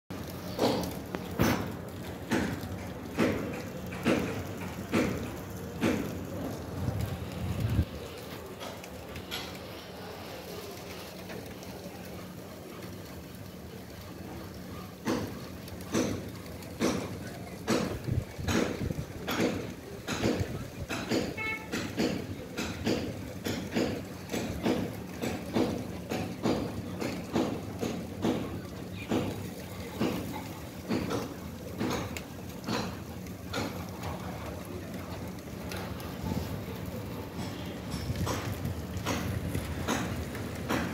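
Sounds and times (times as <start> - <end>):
low machinery hum: 0.1 - 40.9
tanker unloading hum and hiss: 0.2 - 12.8.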